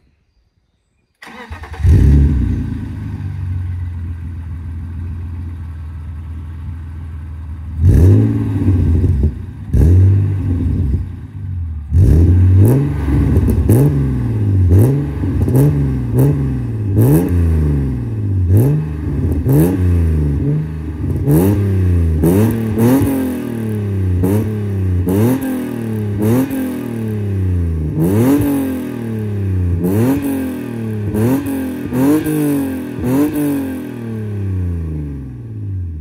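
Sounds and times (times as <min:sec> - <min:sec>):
engine revving in blips: 0:01.2 - 0:03.2, 0:07.8 - 0:11.1, 0:11.8 - 0:35.4
car engine starting and idling: 0:01.2 - 0:25.2.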